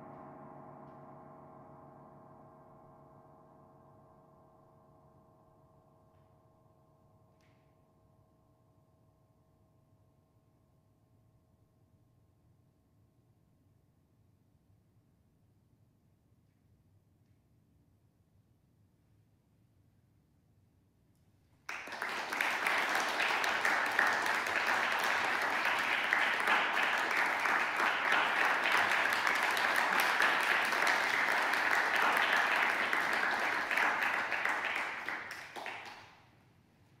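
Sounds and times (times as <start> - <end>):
audience applauding: 21.7 - 36.2.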